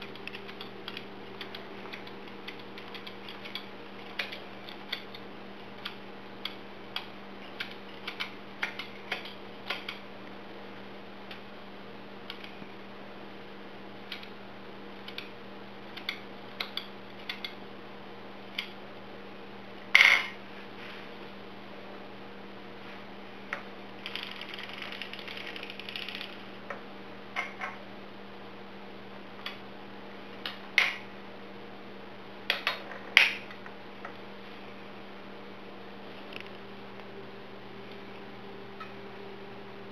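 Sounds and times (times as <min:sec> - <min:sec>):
metal needles clicking: 0:00.0 - 0:10.0, 0:24.0 - 0:26.5
steady low hum: 0:00.0 - 0:39.9.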